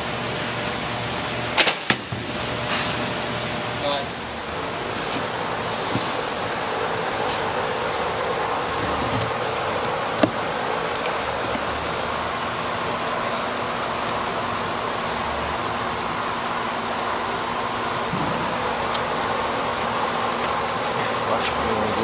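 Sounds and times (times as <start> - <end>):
cardboard box knocks and scrapes: 5.0 - 6.3.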